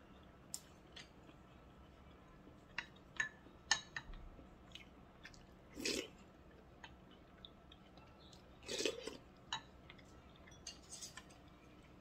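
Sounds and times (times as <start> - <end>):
chopsticks clinking on ceramic dish: 10.4 - 11.4.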